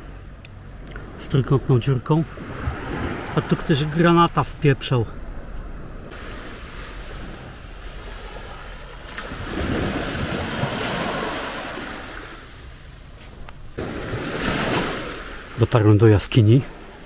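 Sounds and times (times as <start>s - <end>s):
sea waves washing onto beach: 6.1s - 17.0s.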